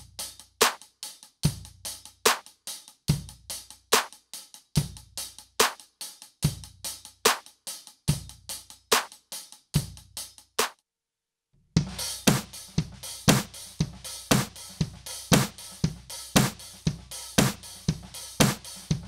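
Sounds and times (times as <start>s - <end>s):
snare drum with electronic samples: 0.0s - 10.8s, 11.8s - 19.0s
kick drum booming: 11.8s - 19.0s
fast hi-hat-like ticks: 12.2s - 19.0s.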